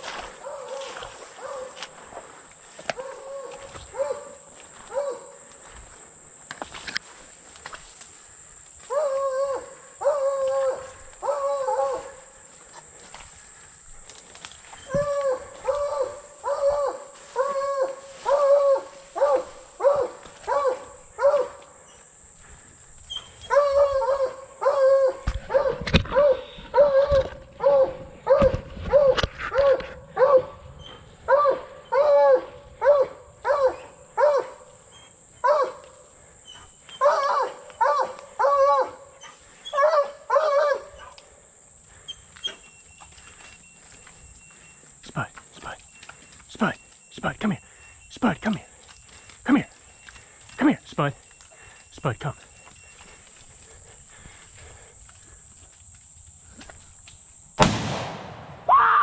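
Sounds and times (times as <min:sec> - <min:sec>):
dog barking: 0:00.4 - 0:01.8, 0:02.9 - 0:05.4, 0:08.9 - 0:12.2, 0:15.1 - 0:21.6, 0:23.4 - 0:30.6, 0:31.3 - 0:34.7, 0:35.4 - 0:35.8, 0:37.0 - 0:41.1.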